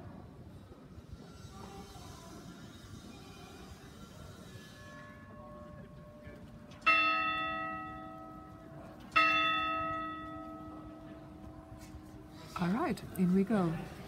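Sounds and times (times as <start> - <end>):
tower bell striking: 6.8 - 12.6.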